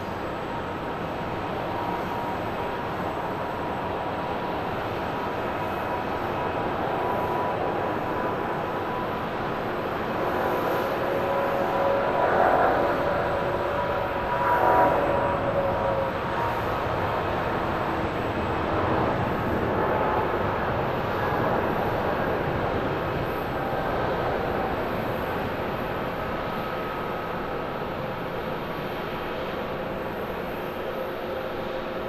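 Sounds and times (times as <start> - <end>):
jet engine roar with whine: 0.0 - 32.0.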